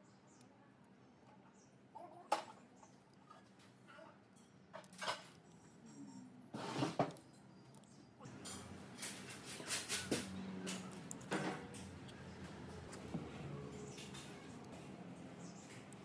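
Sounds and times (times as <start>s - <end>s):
craft knife scraping vinyl decal: 6.6s - 7.2s.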